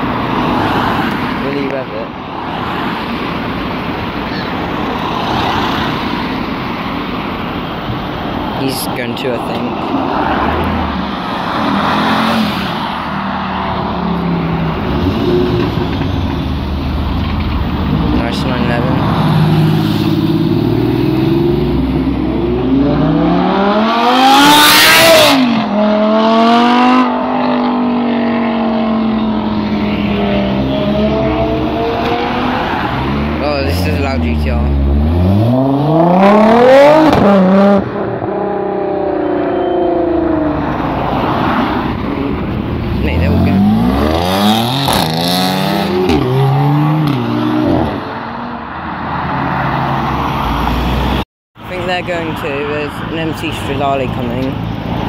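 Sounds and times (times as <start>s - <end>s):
sports car accelerating: 17.7s - 48.6s.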